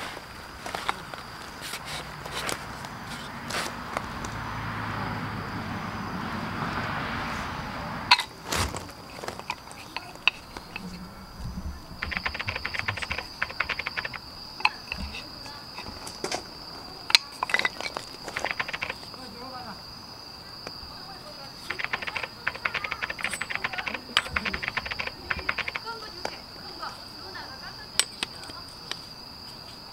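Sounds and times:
rustling handling noise: 0.0 - 4.3, 8.1 - 19.3
wooden legs clicking and knocking: 8.1 - 16.5, 17.1 - 19.1, 21.7 - 26.4.

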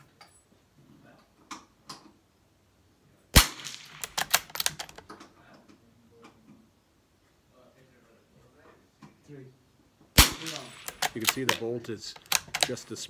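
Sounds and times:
rifle shot: 3.4 - 4.8, 10.2 - 12.8
rifle bolt metallic clicks: 3.4 - 5.3, 10.2 - 12.9.

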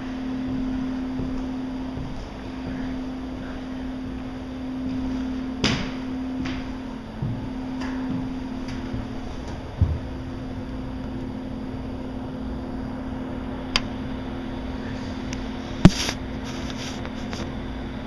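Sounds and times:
low mechanical hum: 0.0 - 18.0
low thump: 9.8 - 10.3.

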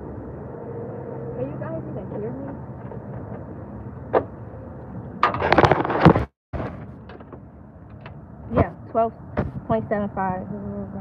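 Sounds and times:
low hum: 0.0 - 11.0
scraping against microphone: 5.2 - 7.0.

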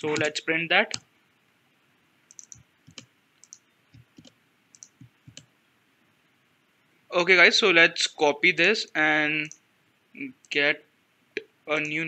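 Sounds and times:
keyboard keys clicking: 0.0 - 1.0, 2.3 - 5.5.

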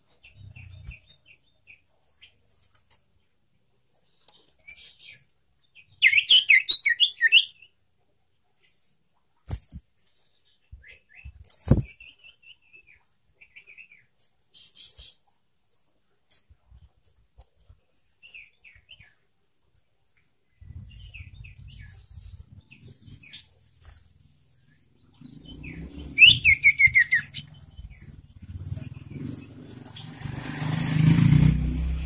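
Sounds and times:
bird chirps and buzzy notes: 4.7 - 7.8, 20.5 - 32.0.

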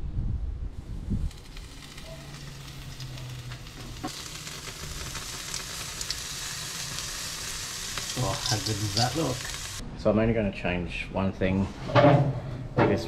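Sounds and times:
meat sizzling on a grill: 0.8 - 9.8.

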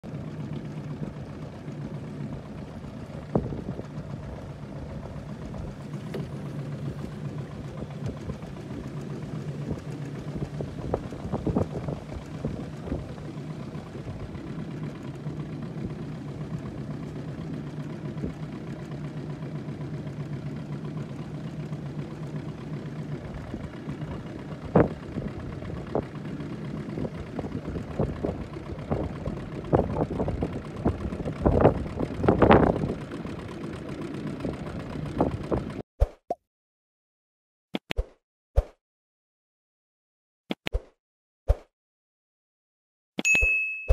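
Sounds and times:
boat motor humming: 0.0 - 35.8
water slapping against hull: 2.3 - 16.4.

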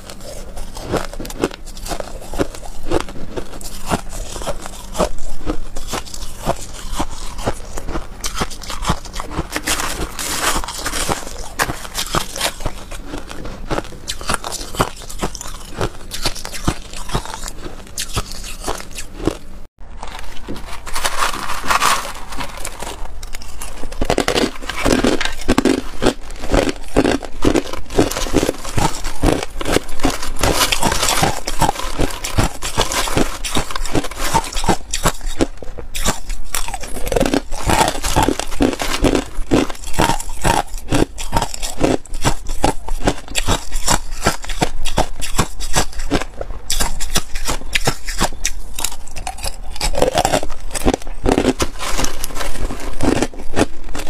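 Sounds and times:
spoon scraping crushed ice: 0.0 - 19.4, 20.0 - 54.0
ice crunching between teeth: 0.0 - 54.0.

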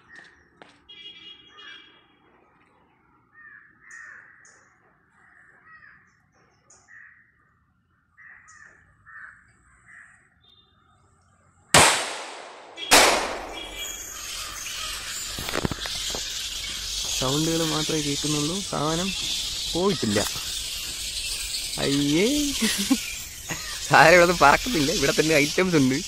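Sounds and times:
firecrackers banging: 11.8 - 26.0
harsh bird squawks: 12.7 - 26.0.

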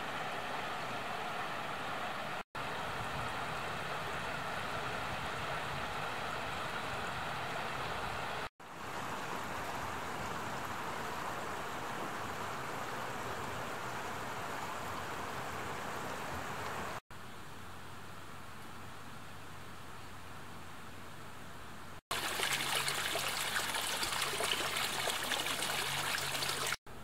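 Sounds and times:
stream rushing over rocks: 22.1 - 26.8.

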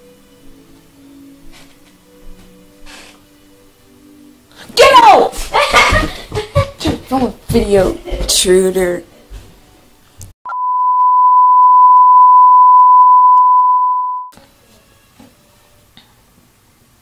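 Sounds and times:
steady test tone beep: 10.5 - 14.3.

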